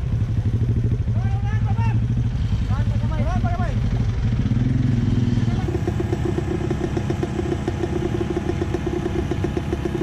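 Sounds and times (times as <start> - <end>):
small engine running: 2.3 - 10.0.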